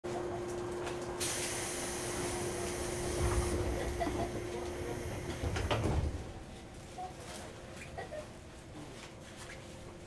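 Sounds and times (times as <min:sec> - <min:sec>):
train interior hum: 0:00.1 - 0:10.0
hiss: 0:01.2 - 0:03.8.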